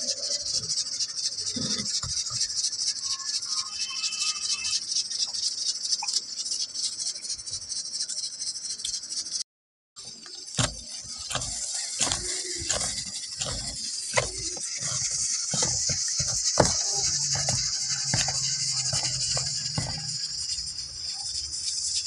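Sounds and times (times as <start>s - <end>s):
steady high hiss: 10.0s - 22.0s
herb leaves rustling: 10.5s - 20.4s
dough kneading thumps and squishes: 10.5s - 20.7s.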